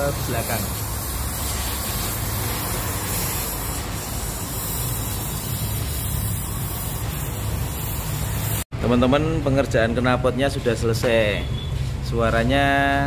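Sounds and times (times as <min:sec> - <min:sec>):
welding hiss: 0:00.0 - 0:08.7.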